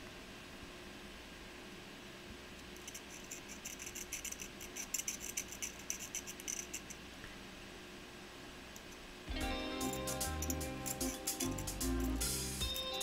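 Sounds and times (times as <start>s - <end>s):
metal tool scraping soldering iron tip: 2.8s - 7.0s.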